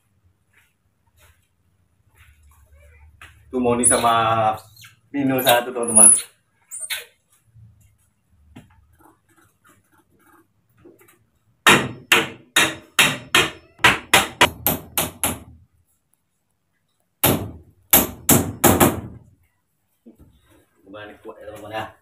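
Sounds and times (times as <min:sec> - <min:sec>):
hammer striking bamboo: 0:11.6 - 0:15.5, 0:17.2 - 0:19.1.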